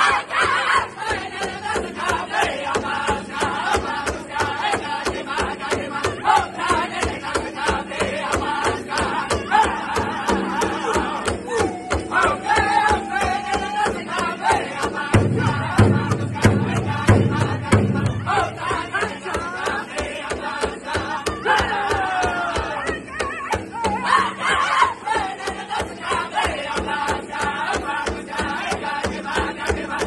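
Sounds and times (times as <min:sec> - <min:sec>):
large drum steady beat: 0:00.0 - 0:30.0
men singing in high voices: 0:00.0 - 0:30.0.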